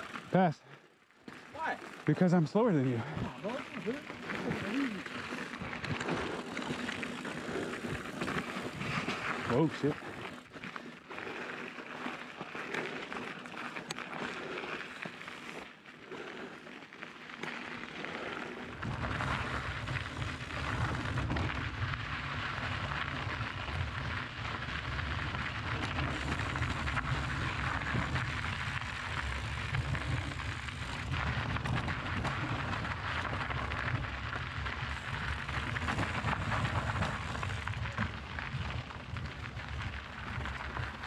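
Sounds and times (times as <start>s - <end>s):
bike tyres crunching on stones: 0.0s - 41.0s
bike rattles and knocks: 17.5s - 41.0s.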